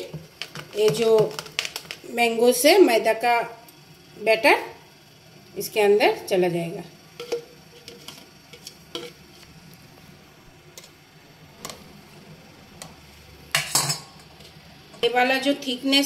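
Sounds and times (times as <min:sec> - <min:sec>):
metal spoon scraping ceramic bowl: 0:07.2 - 0:09.2.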